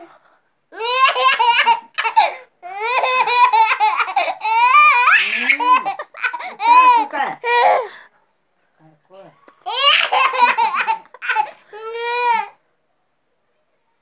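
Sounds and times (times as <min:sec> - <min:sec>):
toddler laughing and squealing: 0:00.8 - 0:07.8, 0:09.6 - 0:12.5.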